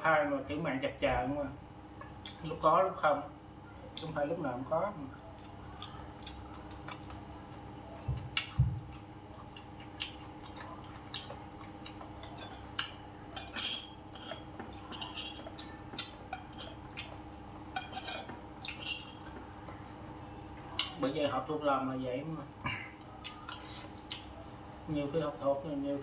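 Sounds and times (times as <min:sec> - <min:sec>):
steady background hum: 0:00.0 - 0:26.0
cutlery clinking on ceramic dishes: 0:13.4 - 0:15.5, 0:17.7 - 0:19.2.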